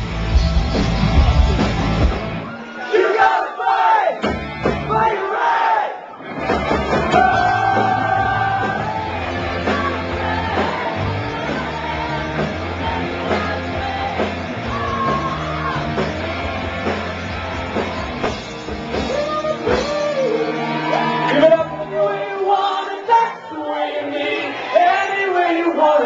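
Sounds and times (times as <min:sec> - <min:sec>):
live rock band playing: 0:00.0 - 0:02.6, 0:04.2 - 0:05.0, 0:06.2 - 0:23.1
person singing: 0:18.9 - 0:26.0.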